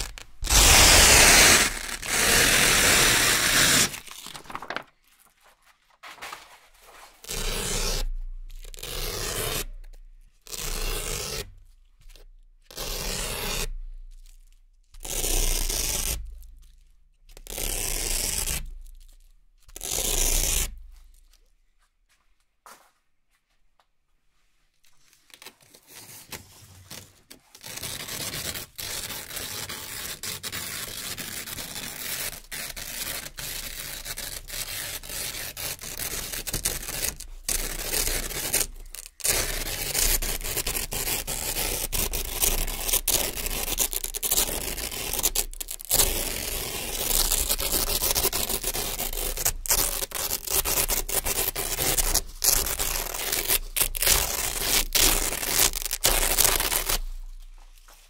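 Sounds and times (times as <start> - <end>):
velcro strips ripping: 0.0 - 5.0, 27.6 - 57.5.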